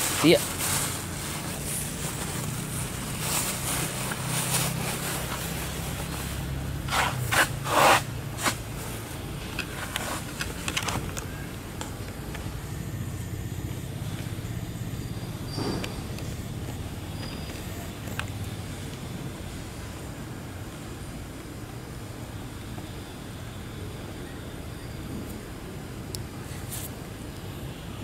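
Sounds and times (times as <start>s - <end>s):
loud noisy bursts: 0.0s - 20.2s.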